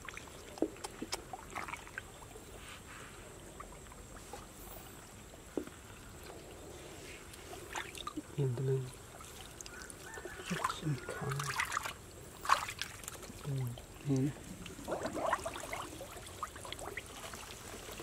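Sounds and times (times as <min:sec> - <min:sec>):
small sharp splashes: 0:00.0 - 0:02.2, 0:07.7 - 0:08.3, 0:08.9 - 0:18.0
pond water splashing: 0:00.0 - 0:02.6, 0:03.2 - 0:18.0.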